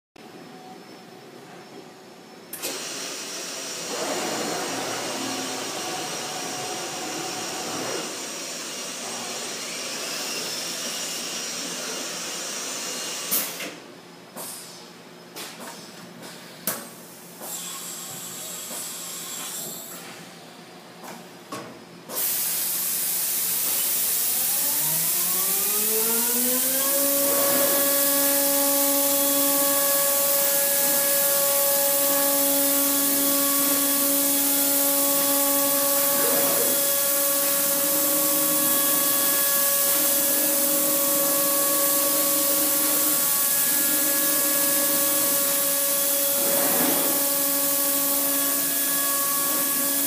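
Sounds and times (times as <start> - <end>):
hiss of air: 14.4 - 15.0
motor whine rising in pitch: 24.1 - 50.0
machine hum: 24.2 - 50.0.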